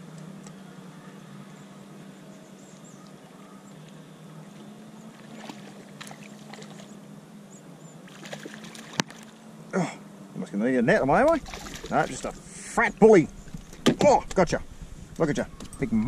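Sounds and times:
steady low hum: 0.0s - 16.0s
fish splashing at surface: 5.2s - 6.9s, 8.1s - 9.3s, 11.3s - 12.4s.

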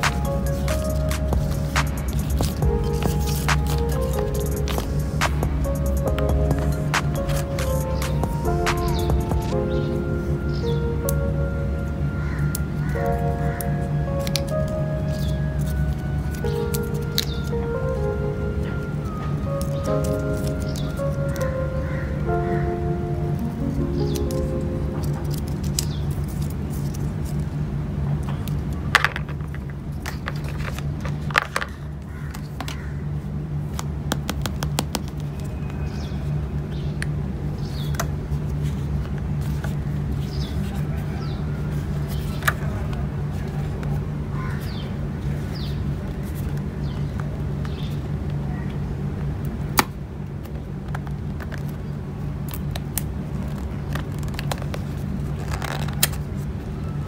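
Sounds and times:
steady low hum: 0.0s - 34.1s
paper and cardboard rustling: 0.1s - 5.3s
sharp clicks of handled packaging: 23.7s - 27.5s.

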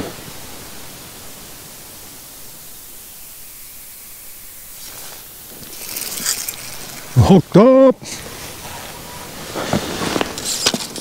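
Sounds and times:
steady outdoor hiss: 0.0s - 11.0s
rustling: 2.9s - 11.0s.

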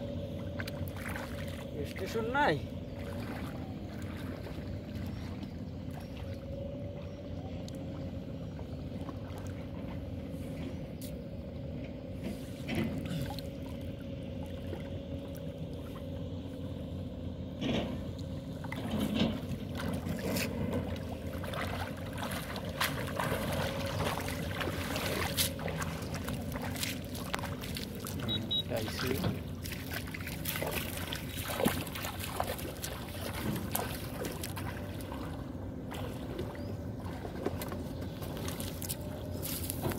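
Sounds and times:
boat engine running: 0.0s - 39.9s
water splashing and dripping: 18.2s - 39.9s.

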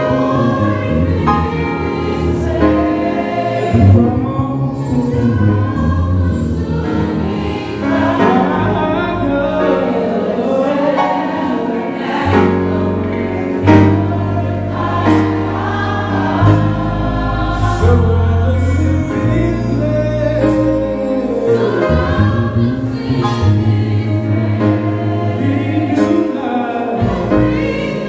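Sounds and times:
band with deep bass notes: 0.0s - 28.0s
gospel choir singing: 0.0s - 28.0s
man singing lead vocal: 8.0s - 12.5s, 17.7s - 22.6s, 24.2s - 28.0s.

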